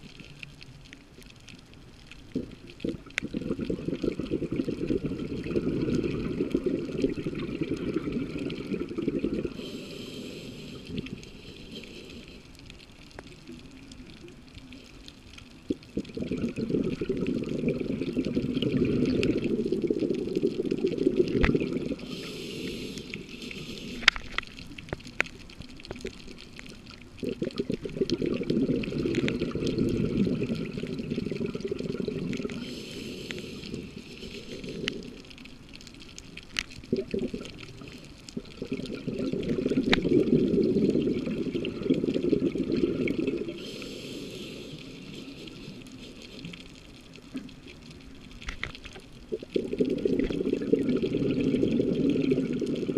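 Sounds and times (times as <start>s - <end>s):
exhaust bubbles bubbling: 2.3s - 9.9s, 15.7s - 24.2s, 27.2s - 35.3s, 36.8s - 46.0s, 49.3s - 52.9s
diver inhaling through regulator: 8.2s - 12.6s, 16.2s - 24.3s, 28.4s - 35.3s, 42.2s - 46.8s.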